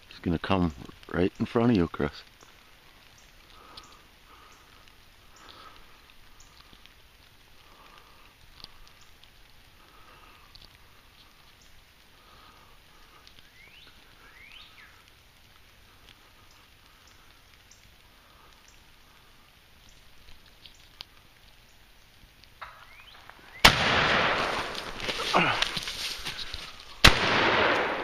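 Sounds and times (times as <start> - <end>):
light ticks: 2.1 - 12.2, 12.9 - 23.4
loud crack: 22.6 - 28.0.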